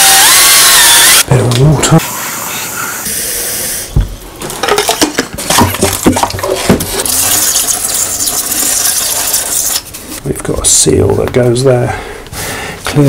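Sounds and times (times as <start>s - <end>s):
plastic bottle clicks and knocks: 4.0s - 6.9s
water running from tap: 6.9s - 9.8s.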